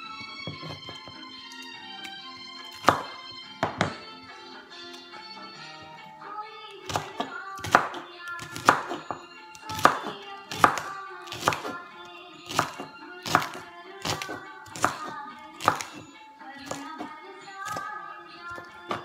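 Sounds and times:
background music: 0.0 - 19.0
knife chopping on wooden board: 0.4 - 1.2, 2.6 - 4.1, 6.8 - 11.8, 12.4 - 17.9, 18.5 - 19.0.

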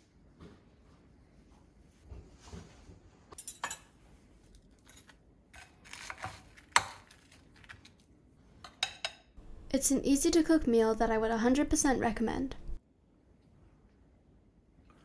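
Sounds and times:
cutlery clinking on bowl: 8.7 - 9.3.

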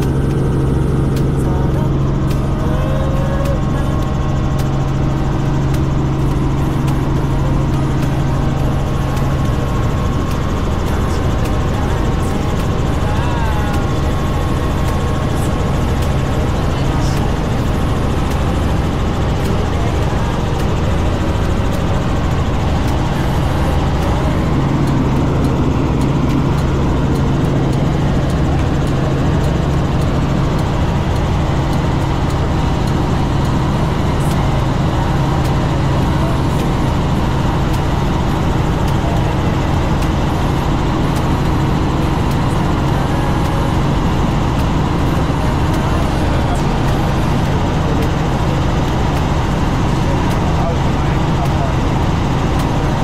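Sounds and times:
helicopter engine and rotors: 0.0 - 53.0.

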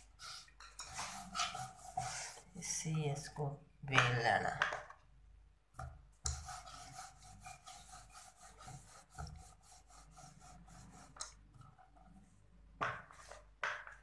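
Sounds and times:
rolling pin rubbing over dough: 0.0 - 2.9, 6.2 - 13.8.

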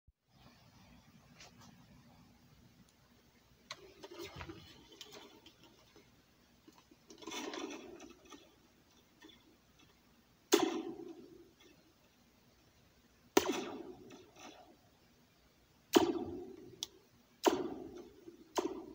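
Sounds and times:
metal slinky rattling and scraping: 3.8 - 10.0.

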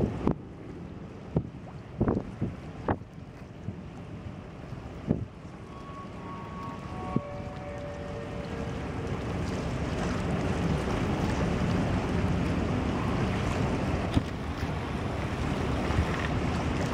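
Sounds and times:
wind buffeting microphone: 0.0 - 5.6
churning ship wash: 0.0 - 16.9
ship engine rumble: 0.0 - 16.9.

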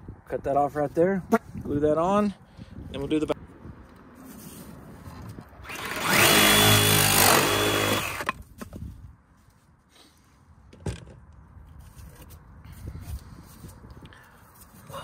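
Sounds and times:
power saw cutting pipe: 5.6 - 8.3.

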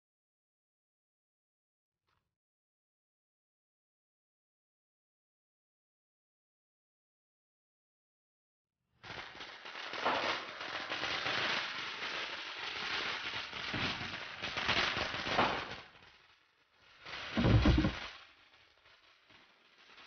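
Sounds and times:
firecrackers crackling: 9.0 - 20.0
heavy boom: 17.4 - 18.0.

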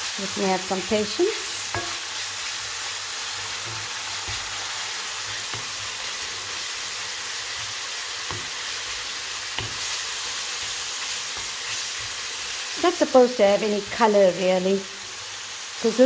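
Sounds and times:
bacon and onions sizzling in oil: 0.0 - 16.0.

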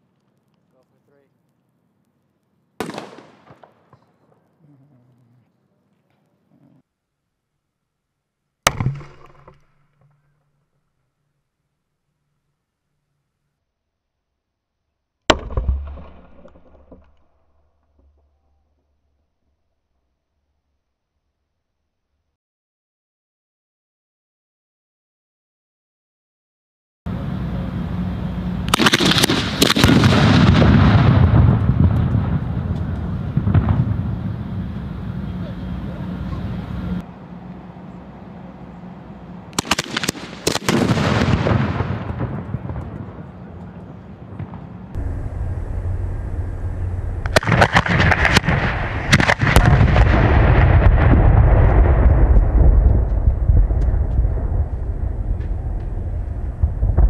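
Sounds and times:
fireworks blasts: 0.0 - 6.4, 27.1 - 57.0
fireworks cracks: 0.0 - 6.5, 28.6 - 57.0
faint crackles: 0.0 - 6.9
rumble and crackle: 0.0 - 13.6, 15.3 - 20.2, 27.1 - 57.0
low-pitched rush: 27.1 - 57.0.

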